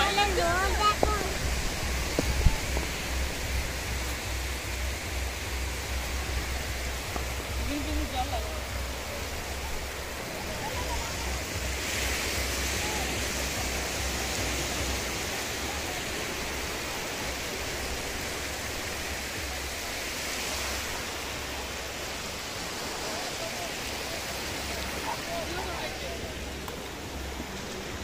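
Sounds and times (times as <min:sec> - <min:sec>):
wind buffeting microphone: 0:00.0 - 0:19.7
sea surf hiss: 0:00.0 - 0:28.0.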